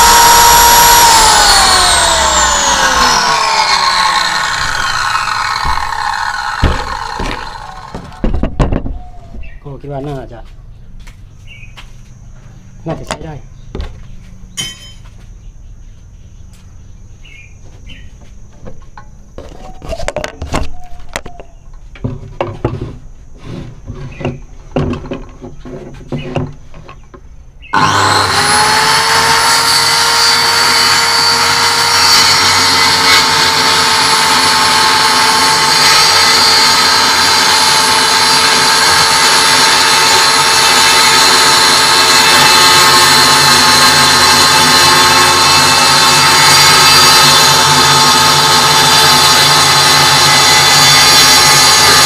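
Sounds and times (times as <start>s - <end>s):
circular saw whining: 0.0s - 9.4s, 27.7s - 52.0s.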